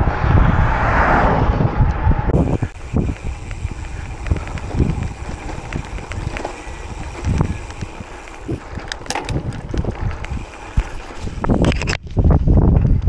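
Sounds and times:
wind buffeting microphone: 0.0s - 13.0s
bike tyre noise: 2.1s - 12.6s
bike clicks and rattles: 2.4s - 13.0s.

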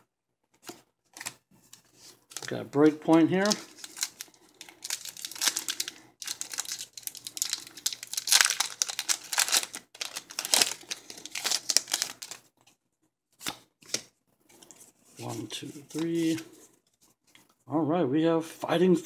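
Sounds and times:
foil wrapper tearing and crinkling: 3.1s - 12.4s.

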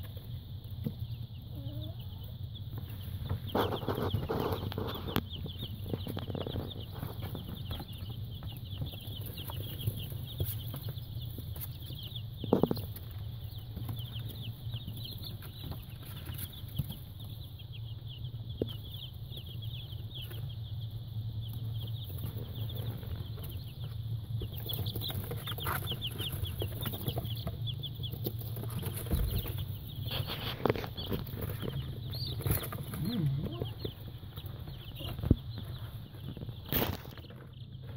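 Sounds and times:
baby chicks peeping: 0.0s - 37.9s.

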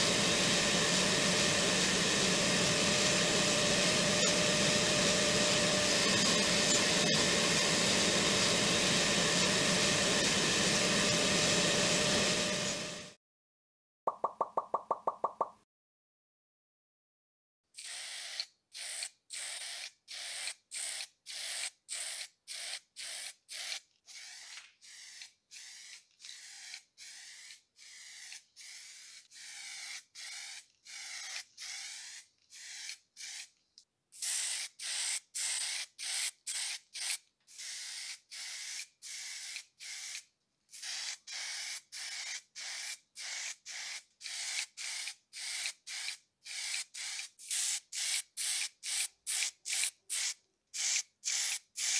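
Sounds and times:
hissing spray bursts: 40.8s - 51.9s.

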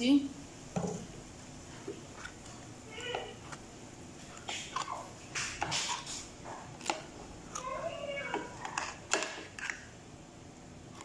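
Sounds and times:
metal spoon scraping a bowl: 6.8s - 9.8s.

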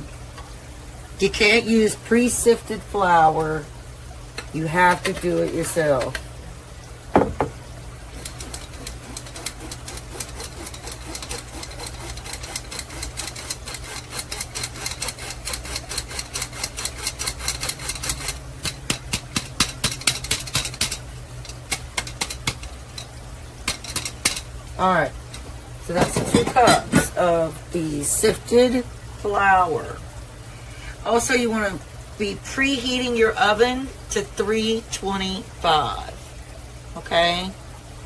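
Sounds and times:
knock on metal bowl: 7.1s - 7.6s.

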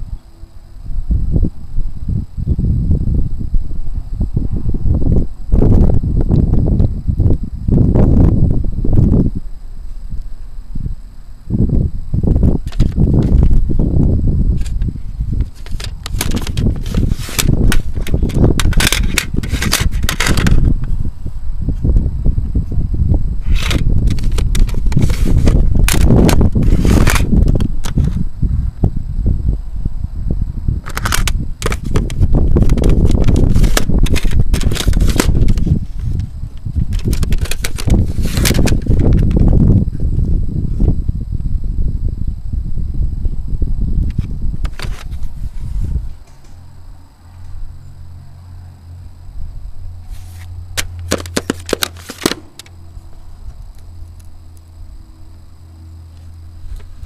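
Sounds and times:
steady low hum: 0.0s - 57.0s
microphone handling noise: 11.5s - 29.0s, 30.8s - 41.5s, 44.0s - 46.6s.

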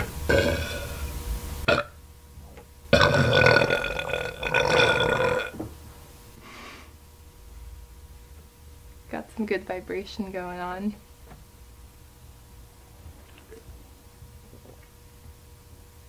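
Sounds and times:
woman burping: 0.3s - 1.0s, 1.7s - 2.0s, 3.0s - 5.6s.

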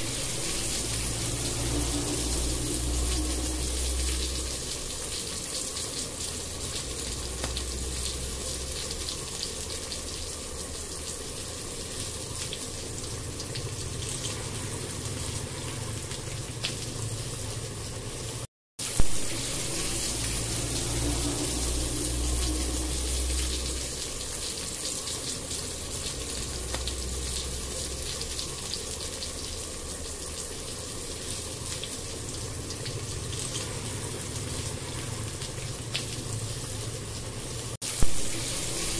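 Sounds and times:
low hum: 0.0s - 5.2s, 19.0s - 24.7s
vegetables sizzling in hot oil: 0.0s - 11.3s, 12.4s - 28.8s, 31.4s - 38.9s.

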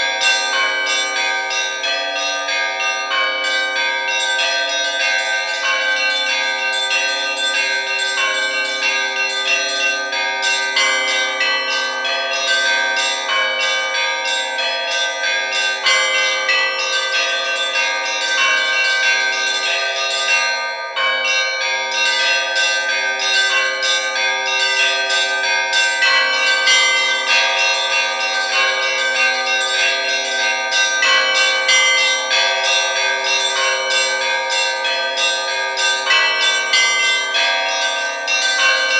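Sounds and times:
church bells pealing: 0.0s - 38.9s.

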